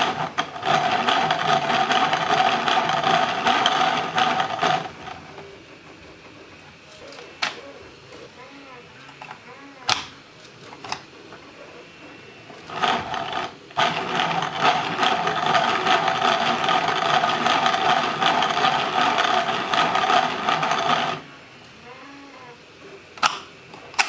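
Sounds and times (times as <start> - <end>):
plastic gears whirring rattle: 0.0 - 5.4, 12.6 - 21.3.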